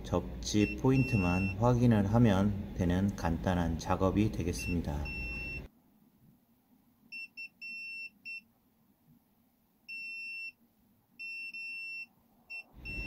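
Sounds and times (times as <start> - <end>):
multimeter continuity beeps: 0.5 - 1.7, 4.5 - 5.7, 7.1 - 8.4, 9.9 - 10.6, 11.2 - 13.0.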